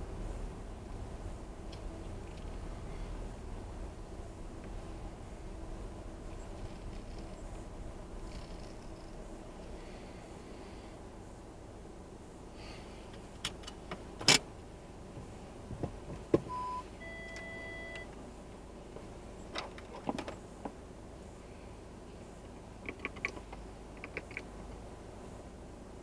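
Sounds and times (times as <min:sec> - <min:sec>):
clicks and knocks in car cabin: 0:15.1 - 0:16.6, 0:19.5 - 0:20.8, 0:22.8 - 0:24.5
short beep: 0:16.5 - 0:18.1.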